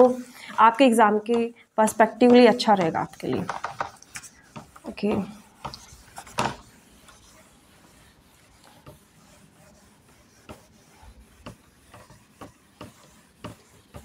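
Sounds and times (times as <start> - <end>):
duster rubbing whiteboard: 0.0 - 14.0.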